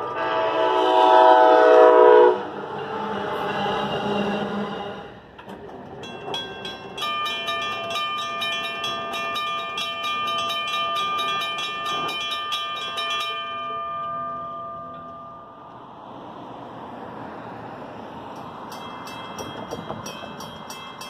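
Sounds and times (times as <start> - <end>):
railroad crossing bell ringing: 5.9 - 16.4, 18.2 - 21.0.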